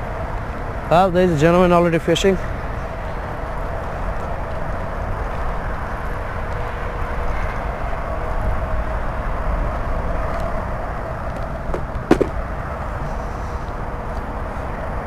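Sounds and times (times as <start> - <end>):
road traffic drone: 0.0 - 15.0
sharp knock: 11.7 - 12.4.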